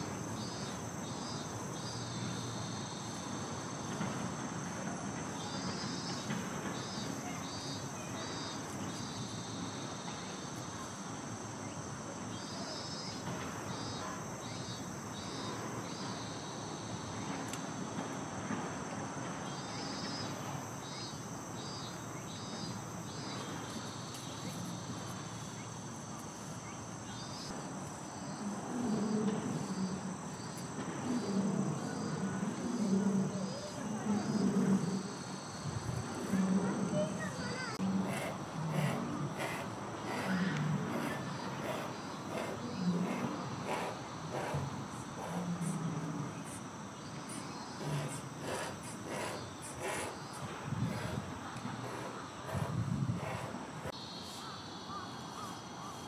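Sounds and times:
faint voices: 35.8s - 53.9s.

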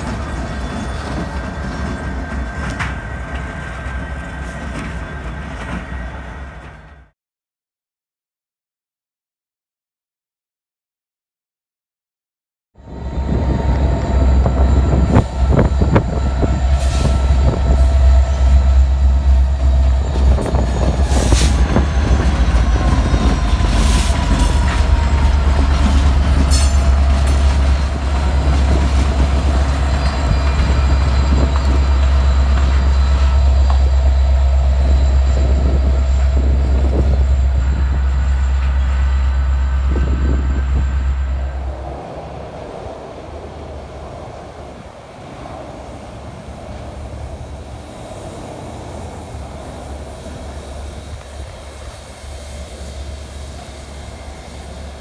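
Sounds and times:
wheels squealing: 0.0s - 6.8s
diesel locomotive engines rumbling: 0.0s - 7.2s, 12.8s - 55.0s.

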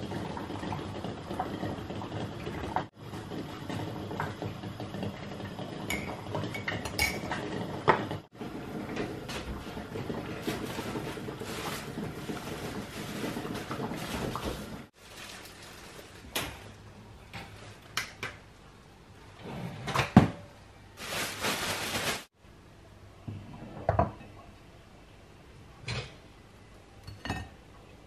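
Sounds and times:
plastic bag rustling: 9.2s - 16.8s, 21.0s - 22.4s.

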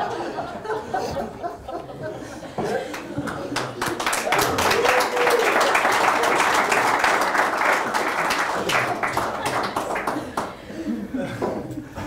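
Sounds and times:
audience applauding: 2.9s - 10.6s.

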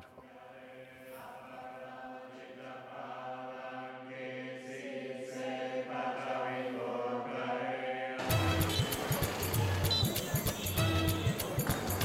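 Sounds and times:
low voices chanting: 0.2s - 12.0s
music with sharp beats: 8.2s - 12.0s.

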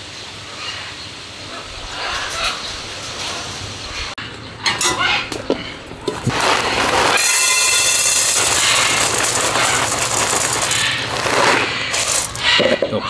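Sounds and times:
pellets poured into bowl: 6.2s - 12.6s.

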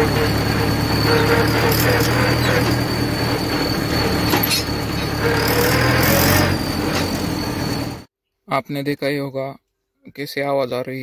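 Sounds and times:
high-pitched exhaust whistle: 0.0s - 8.1s
tractor engine rumbling: 0.0s - 8.1s.

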